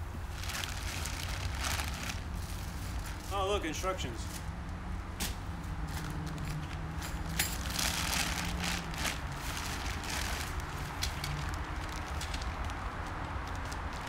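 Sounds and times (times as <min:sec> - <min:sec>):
tent rustling and knocks: 0:05.2 - 0:12.4.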